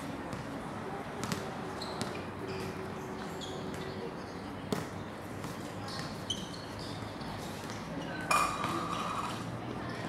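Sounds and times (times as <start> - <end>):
basketball bouncing on hard court: 1.2 - 2.2.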